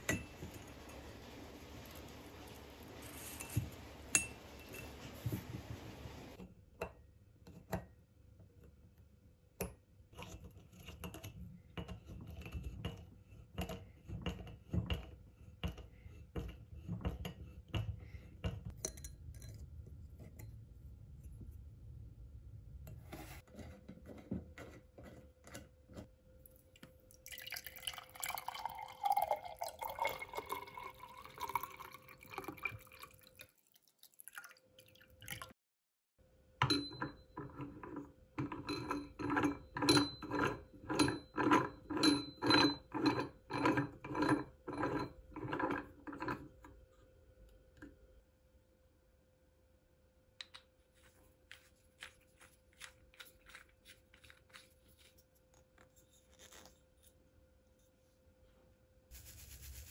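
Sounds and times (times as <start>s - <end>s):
liquid dripping and trickling: 26.7s - 35.6s.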